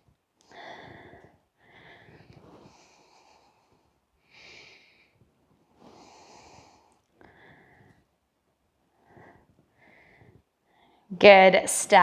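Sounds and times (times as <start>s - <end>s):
faint breaths: 0.0s - 11.1s.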